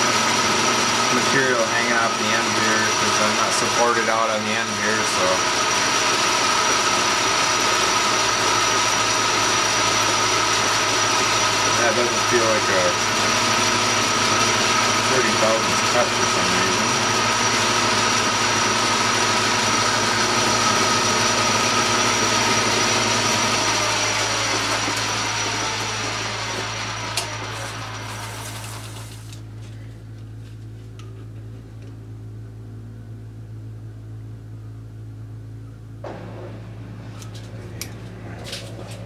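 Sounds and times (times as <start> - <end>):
metal lathe whining: 0.0 - 29.4
low steady hum: 29.4 - 39.0.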